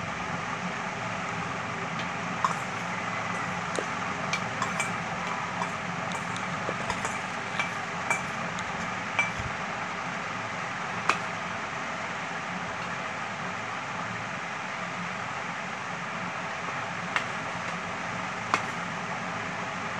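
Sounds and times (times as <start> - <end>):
steady background noise: 0.0 - 19.9
spoon clinking on metal pots: 2.4 - 9.5.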